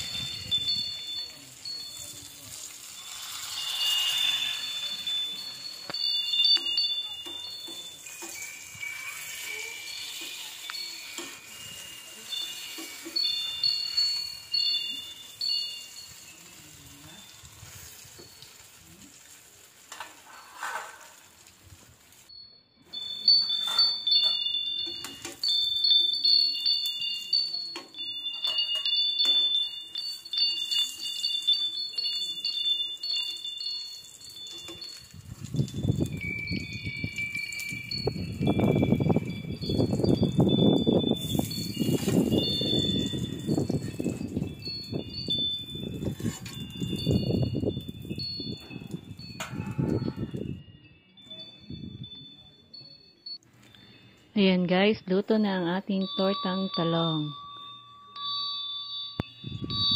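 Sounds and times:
high chimes ringing: 0.0s - 21.0s, 21.8s - 59.9s
omelettes sizzling in oil: 0.0s - 22.4s, 23.0s - 38.1s
spatula clinking on metal pan: 23.4s - 29.5s.

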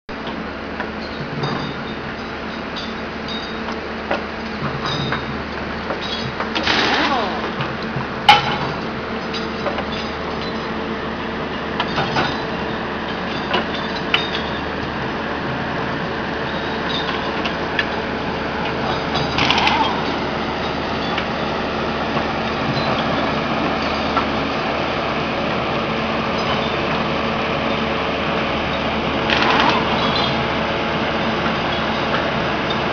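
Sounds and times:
work train machinery droning: 0.1s - 32.9s
metallic clatter: 18.9s - 21.2s, 29.2s - 30.4s.

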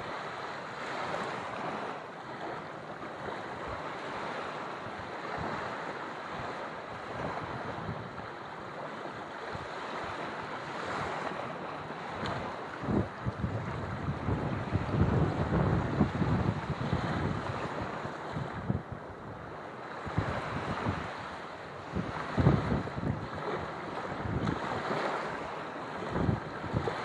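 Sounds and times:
small waves washing on sand: 0.0s - 27.0s
wind buffeting microphone: 0.0s - 27.0s.

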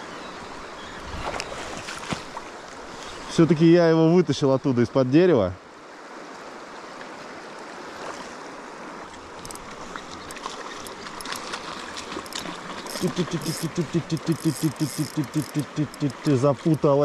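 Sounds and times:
river water rushing: 5.6s - 17.0s
light crackling and splashing: 9.0s - 17.0s.

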